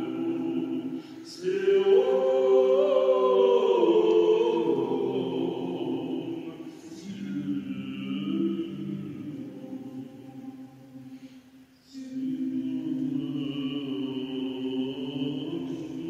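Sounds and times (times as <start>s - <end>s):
vocal ensemble singing a hymn: 0.0s - 16.0s.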